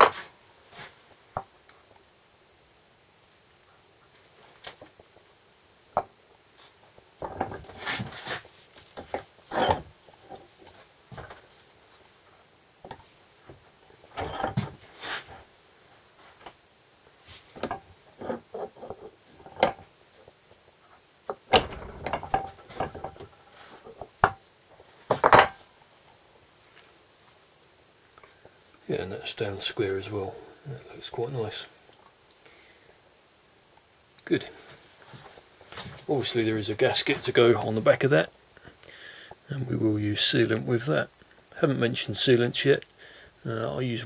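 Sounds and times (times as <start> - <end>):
wood and steel knocking and clunking: 7.0 - 11.4, 12.8 - 15.4, 17.5 - 19.9, 21.3 - 24.4, 25.0 - 25.6.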